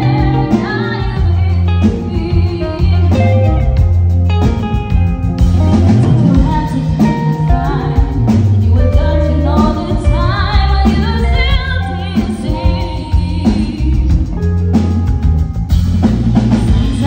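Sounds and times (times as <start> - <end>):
woman singing: 0.0 - 3.9, 5.5 - 14.6, 16.5 - 17.0
bass guitar: 0.0 - 17.0
drum kit: 0.0 - 17.0
electric guitar: 0.0 - 17.0.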